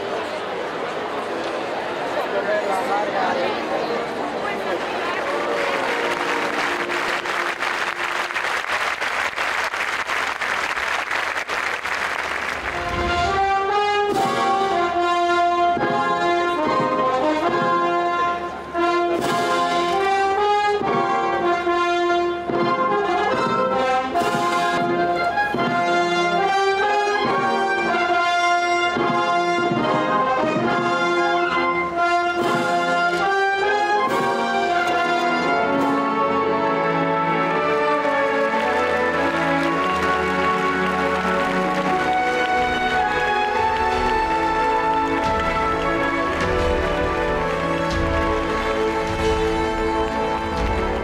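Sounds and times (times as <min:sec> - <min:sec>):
crowd noise: 0:00.0 - 0:51.0
military brass band playing: 0:05.0 - 0:09.3, 0:09.9 - 0:51.0.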